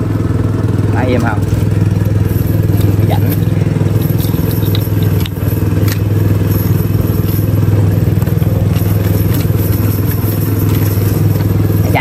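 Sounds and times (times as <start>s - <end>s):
small engine humming: 0.0s - 12.0s.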